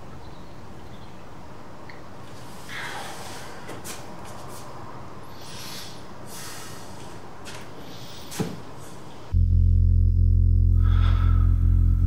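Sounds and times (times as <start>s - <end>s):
steady hiss: 1.2s - 9.3s
man breathing heavily: 2.4s - 3.9s, 5.2s - 8.3s, 10.8s - 11.6s.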